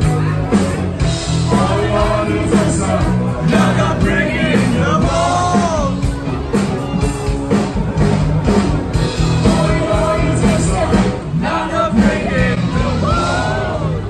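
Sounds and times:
live rock band playing: 0.0s - 14.0s
person singing: 1.4s - 6.1s.

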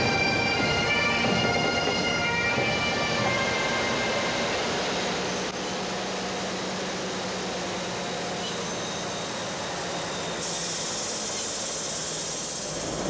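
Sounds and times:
truck engine running: 0.0s - 13.0s
higher hiss: 10.3s - 13.0s.

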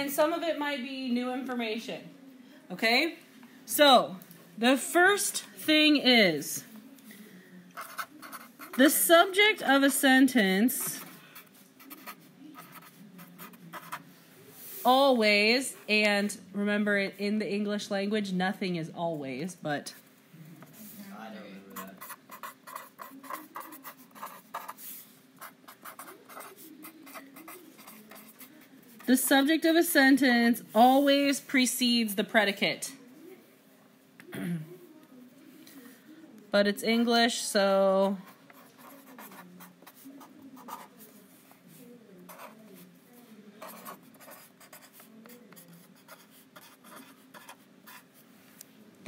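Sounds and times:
felt-tip pen writing on paper: 7.8s - 8.8s, 10.9s - 14.0s, 21.8s - 24.8s, 25.4s - 28.5s, 38.5s - 40.0s, 40.6s - 40.9s, 42.3s - 42.6s, 43.6s - 48.1s.

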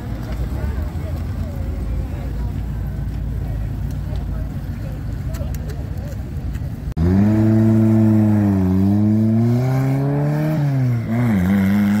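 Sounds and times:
van engine driving off: 6.9s - 12.0s.

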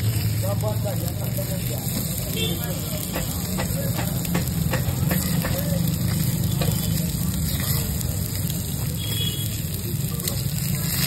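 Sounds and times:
eggs sizzling in pans: 0.0s - 11.0s
metal spoon scraping a pan: 4.6s - 8.5s.

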